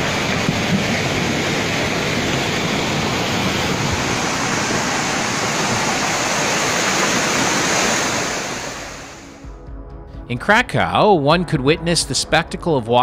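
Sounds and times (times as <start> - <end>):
floodwater rushing: 0.0 - 9.4.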